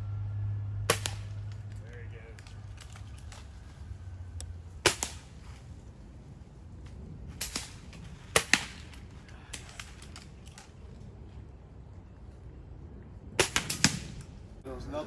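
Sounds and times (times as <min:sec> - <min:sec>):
air rifle shots cracking: 0:00.9 - 0:01.6, 0:04.8 - 0:05.6, 0:07.3 - 0:10.6, 0:13.4 - 0:14.3.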